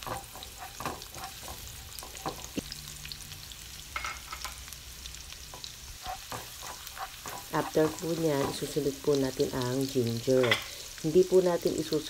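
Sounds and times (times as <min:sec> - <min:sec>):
spatula striking pan: 0:00.0 - 0:02.6, 0:05.5 - 0:08.7
garlic sizzling in hot oil: 0:00.0 - 0:12.0.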